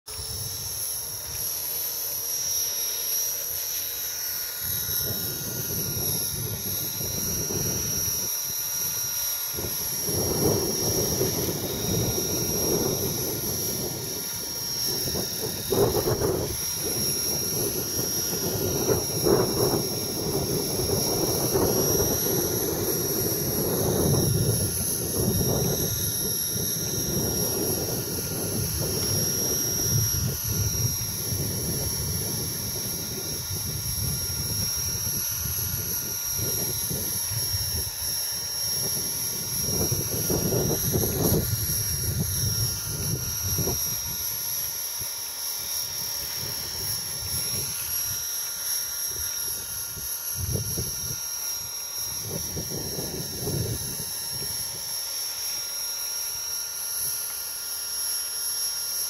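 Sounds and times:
model helicopter whining: 0.1 - 59.0
wind buffeting microphone: 4.6 - 44.6, 45.8 - 48.3, 49.1 - 51.2, 52.2 - 54.9.

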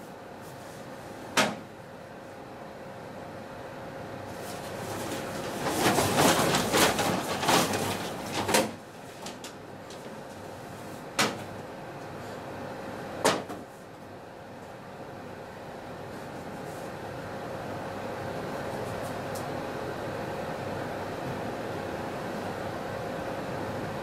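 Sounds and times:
faint steady hum: 0.0 - 24.0
paper bags rustling: 4.3 - 11.6.

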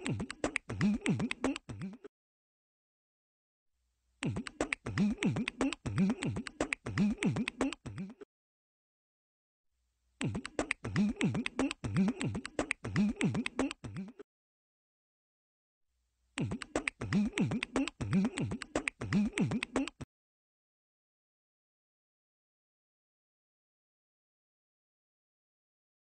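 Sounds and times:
beatbox vocal clicks and slides: 0.0 - 2.1, 4.2 - 8.2, 10.2 - 14.2, 16.4 - 20.1.

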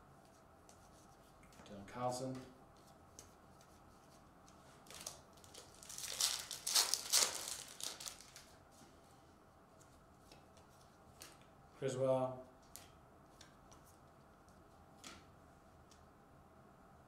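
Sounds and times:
wrapper crinkling and tearing: 4.8 - 8.6.

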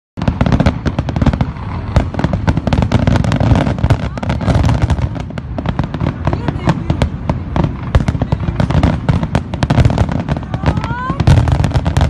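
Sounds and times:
fireworks bangs and crackles: 0.2 - 12.0.

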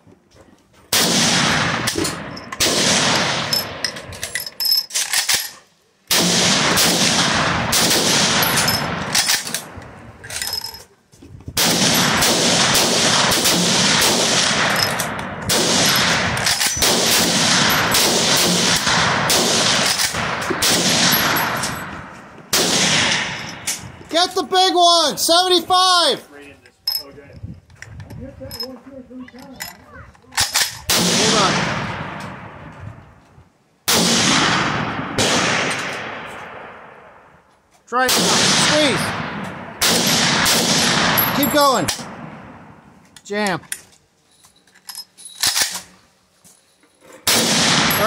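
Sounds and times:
rapid gunfire: 2.6 - 3.5, 6.1 - 9.0, 11.6 - 14.8, 15.5 - 21.6, 39.8 - 41.2.

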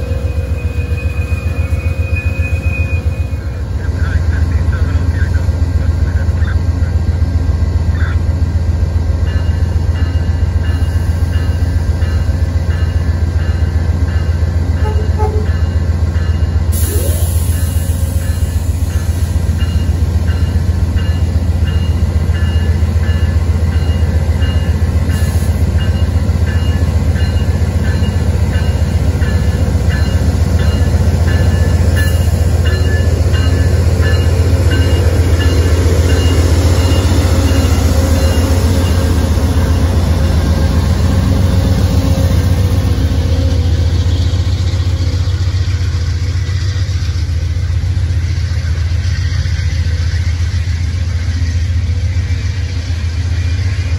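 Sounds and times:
diesel locomotive engine drone: 0.0 - 53.9
locomotive bell ringing: 9.2 - 43.6.

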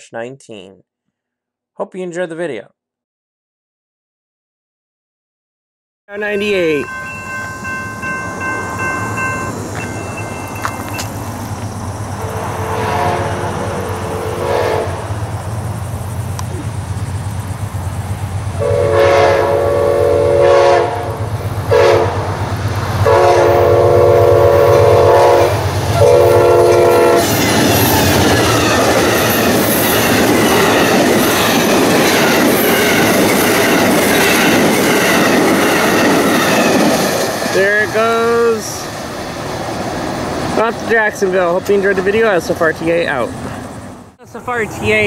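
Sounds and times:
locomotive engine drone: 6.1 - 45.0
train wheels clattering on rails: 6.5 - 18.6, 25.5 - 43.8
train horn blasts: 12.2 - 15.1, 18.6 - 22.3, 23.0 - 29.3.

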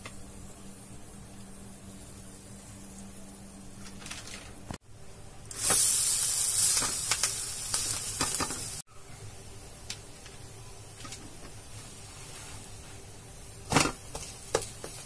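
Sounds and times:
faint frying hiss: 0.0 - 15.0
food sizzling in oil: 5.5 - 8.9, 9.6 - 15.0.

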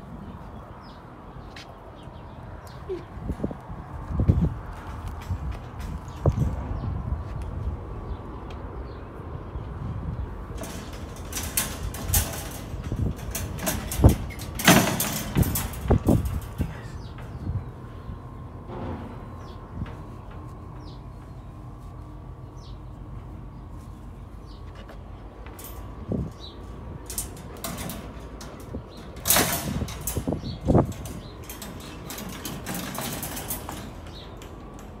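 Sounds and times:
rustling and clicking: 10.5 - 35.0.

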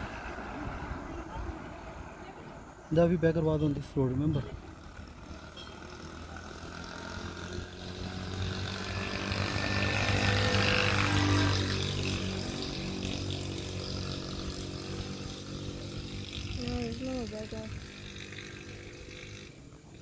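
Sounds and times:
motorcycle engine passing: 0.0 - 20.0.

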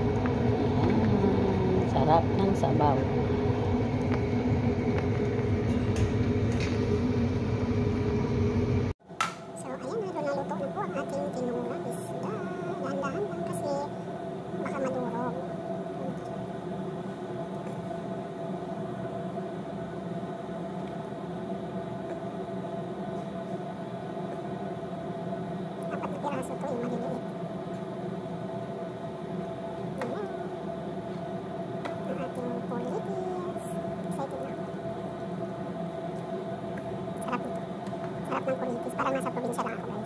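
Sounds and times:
kitchen appliance motor hum: 0.0 - 8.9
steady machine hum: 0.0 - 40.0.

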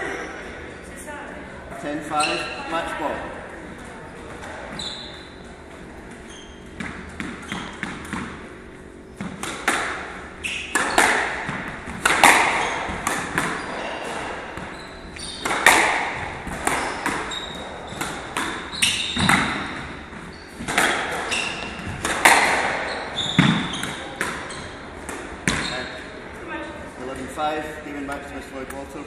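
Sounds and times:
shoes squeaking on wooden floor: 2.0 - 2.8, 4.1 - 5.5, 6.1 - 8.1, 12.3 - 24.8, 25.4 - 26.1
squash ball smacking: 6.8 - 8.5, 9.2 - 25.6.

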